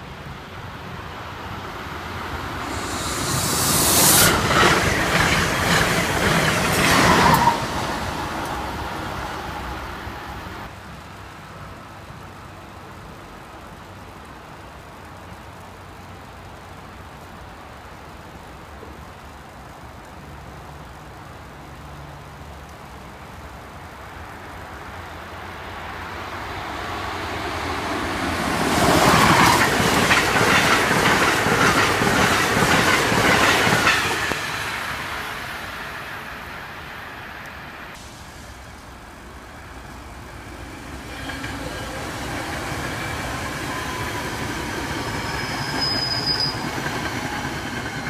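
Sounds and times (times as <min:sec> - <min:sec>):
electric train rushing past: 0:00.0 - 0:10.7, 0:23.9 - 0:48.0
commuter train rolling by: 0:00.0 - 0:48.0.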